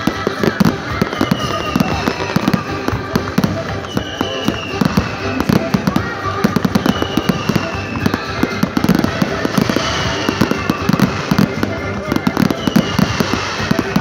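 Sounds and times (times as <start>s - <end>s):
fireworks bangs and crackles: 0.0s - 14.0s
fireworks whistling: 0.0s - 14.0s.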